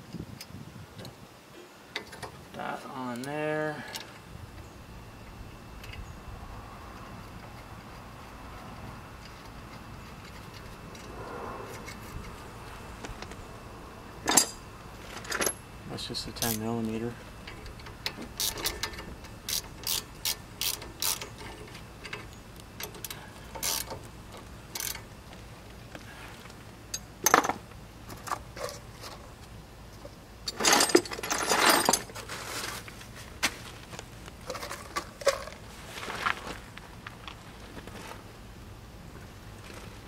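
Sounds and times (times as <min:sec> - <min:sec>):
ratchet wrench clicking: 0:16.4 - 0:16.7, 0:17.6 - 0:22.2, 0:22.8 - 0:24.1, 0:24.7 - 0:25.1.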